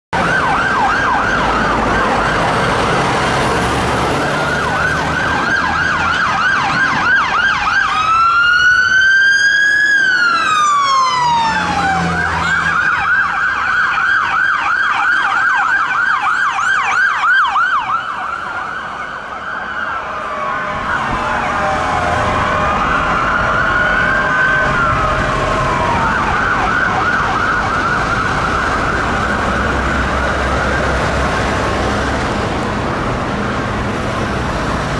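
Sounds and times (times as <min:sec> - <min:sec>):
emergency sirens yelping and wailing: 0:00.1 - 0:34.9
engine rumble: 0:16.6 - 0:34.9.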